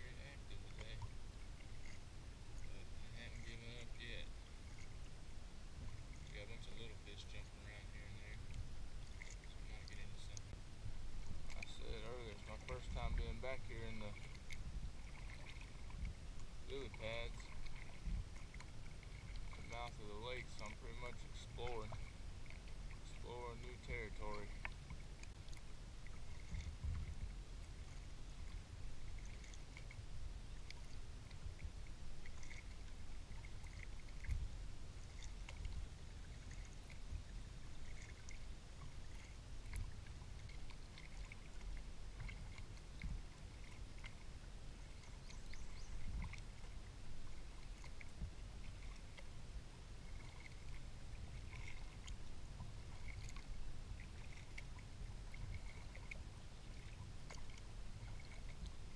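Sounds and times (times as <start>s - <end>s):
paddle strokes in water: 0.0s - 58.9s
steady low rumble: 0.0s - 58.9s.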